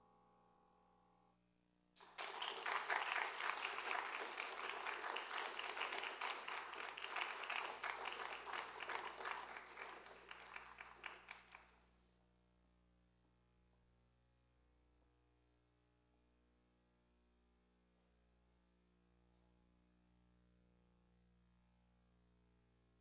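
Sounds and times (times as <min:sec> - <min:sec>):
audience applause: 0:02.0 - 0:11.6.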